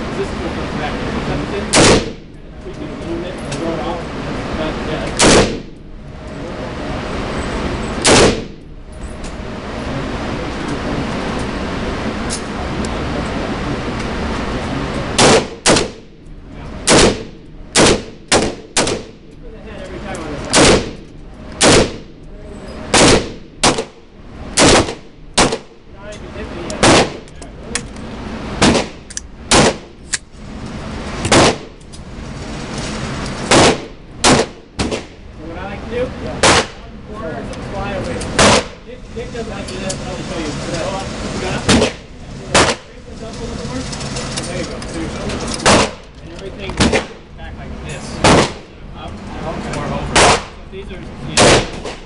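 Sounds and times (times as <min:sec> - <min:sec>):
rifle shot with echo: 0:01.7 - 0:02.2, 0:05.2 - 0:05.7, 0:08.0 - 0:08.6, 0:15.2 - 0:16.0, 0:16.9 - 0:19.2, 0:20.5 - 0:21.0, 0:21.6 - 0:22.1, 0:22.9 - 0:24.0, 0:24.6 - 0:25.7.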